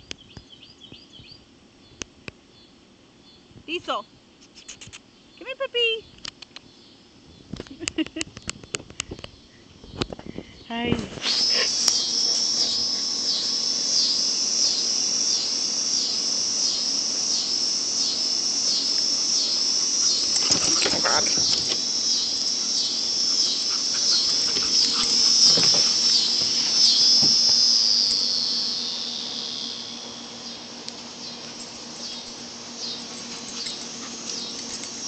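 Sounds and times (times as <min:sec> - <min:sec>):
high-pitched insect chorus: 0:08.6 - 0:35.0.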